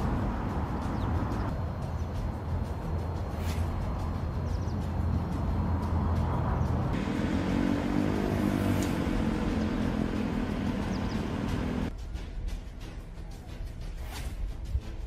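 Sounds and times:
vehicle engine running: 0.0s - 11.9s
street noise: 0.0s - 15.0s.

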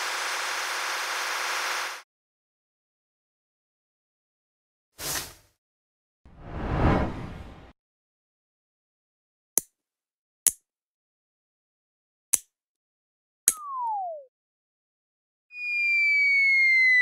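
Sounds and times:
tone sliding down in pitch: 13.6s - 14.3s.

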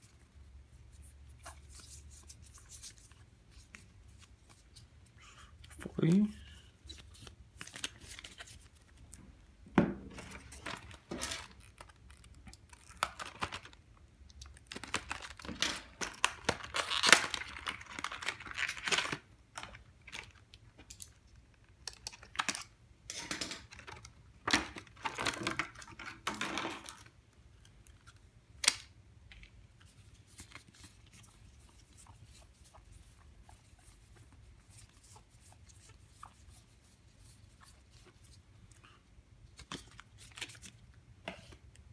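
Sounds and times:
trading cards rustling and clicking: 5.6s - 9.2s, 10.1s - 13.8s.

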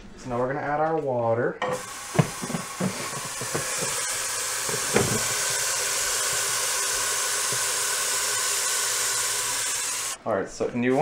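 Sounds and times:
tap water running into metal pot: 1.6s - 10.1s
knock: 2.2s - 4.0s, 4.7s - 5.3s.

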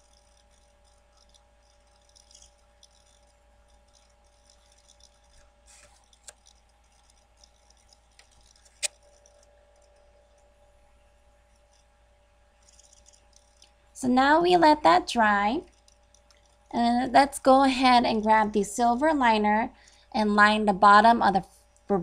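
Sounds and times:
brush clicking on glass bottle: 0.0s - 10.4s, 12.6s - 13.8s, 15.6s - 16.7s
faint steady hum: 0.0s - 22.0s.

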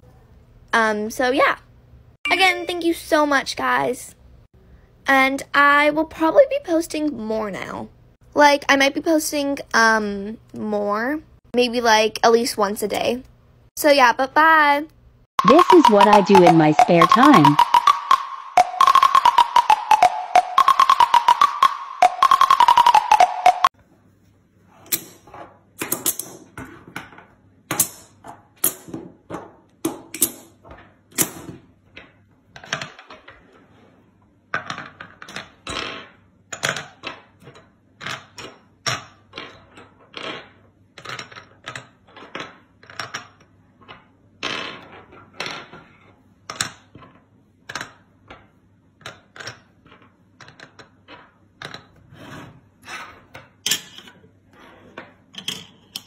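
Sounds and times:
plastic pieces clicking and tapping: 46.5s - 52.0s.

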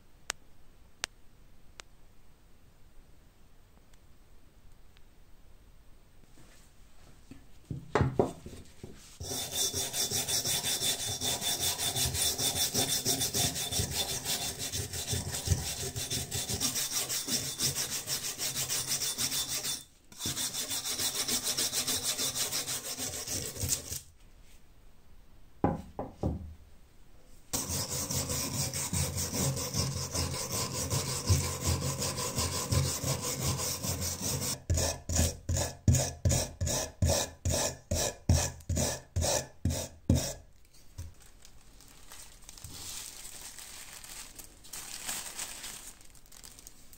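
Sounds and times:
brush scrubbing rusty metal: 9.1s - 24.0s, 27.6s - 40.4s.

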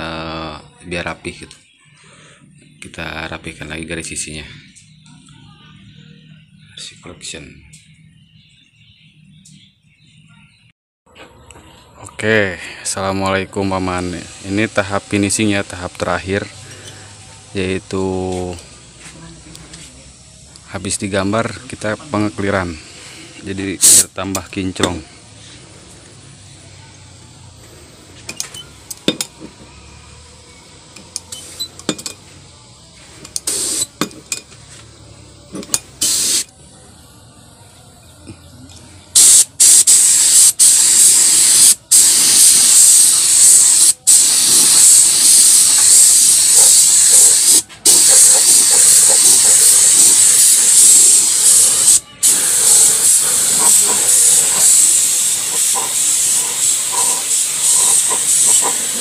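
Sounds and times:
paint spray gun hissing: 13.7s - 17.3s, 21.8s - 26.5s, 28.1s - 34.1s, 35.9s - 36.5s, 39.2s - 59.0s.

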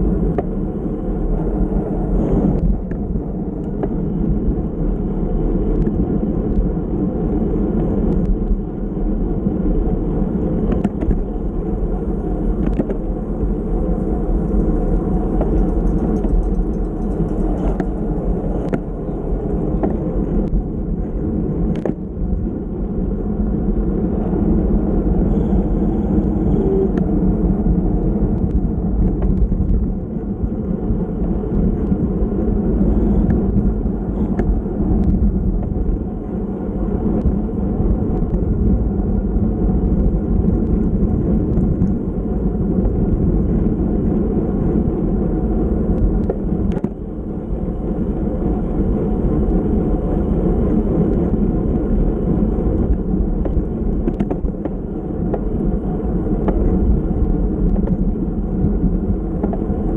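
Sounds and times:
bicycle road noise: 0.0s - 59.9s
wind noise: 0.0s - 59.9s.

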